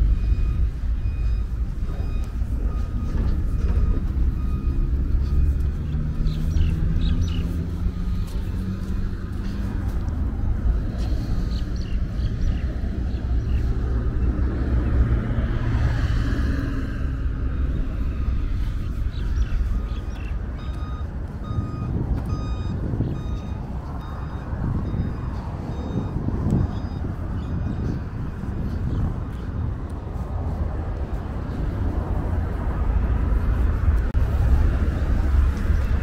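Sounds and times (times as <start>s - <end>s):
reversing alarm beeps: 0.0s - 7.0s, 8.0s - 9.9s, 17.6s - 28.7s
street traffic rumble: 0.0s - 36.0s
vehicle passing close: 0.0s - 36.0s.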